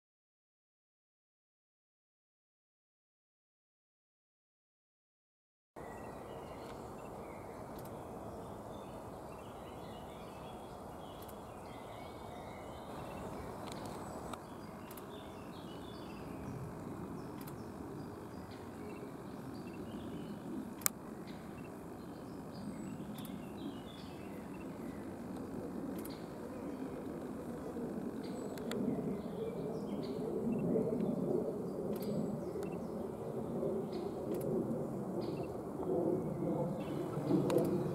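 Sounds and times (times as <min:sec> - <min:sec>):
faint bird chirps: 0:05.8 - 0:34.4
sharp click: 0:11.2 - 0:11.4, 0:17.4 - 0:17.6.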